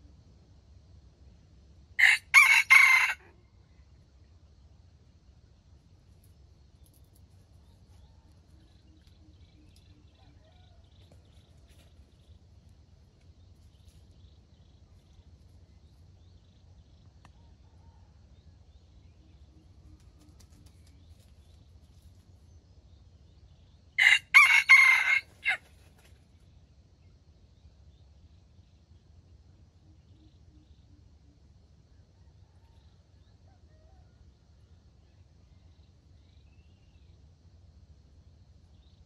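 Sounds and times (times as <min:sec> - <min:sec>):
rooster crowing: 0:02.0 - 0:03.4, 0:10.1 - 0:11.3, 0:24.0 - 0:25.7.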